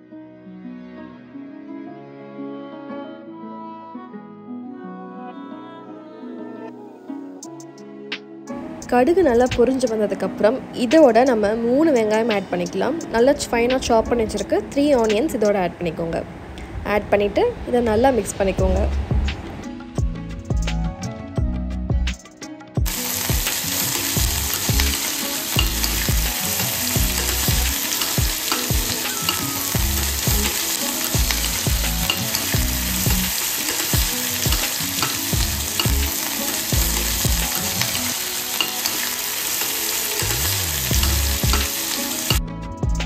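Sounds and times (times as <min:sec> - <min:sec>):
onions sizzling in oil: 0:22.9 - 0:42.4
spoon scraping pan: 0:23.5 - 0:40.4.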